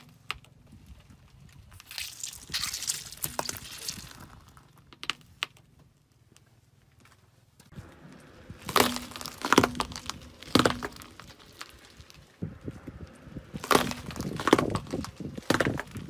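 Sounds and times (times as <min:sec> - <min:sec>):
tyre crushing cucumbers: 0:01.6 - 0:05.7, 0:07.8 - 0:12.4, 0:13.5 - 0:16.0.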